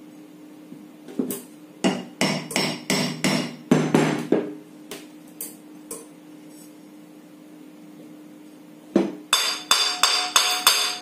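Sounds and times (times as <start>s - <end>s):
hammer striking metal shaft: 1.9s - 3.6s, 9.3s - 11.0s.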